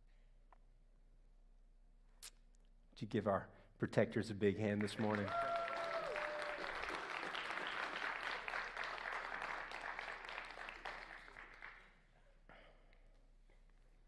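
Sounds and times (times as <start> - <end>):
congregation applauding: 4.6 - 12.1.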